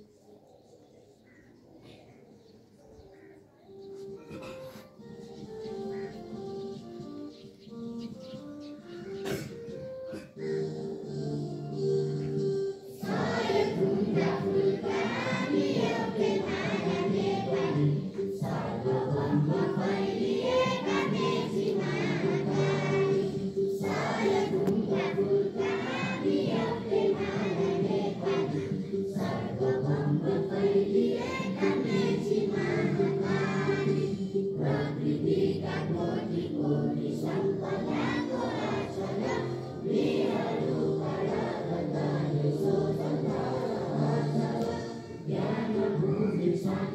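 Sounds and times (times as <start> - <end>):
group of voices singing: 10.1 - 46.9.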